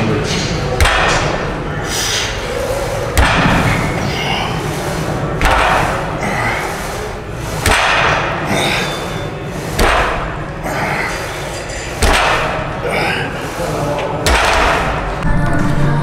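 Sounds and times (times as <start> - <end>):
barbell thudding onto rack pins: 3.2 - 3.8, 12.0 - 12.6.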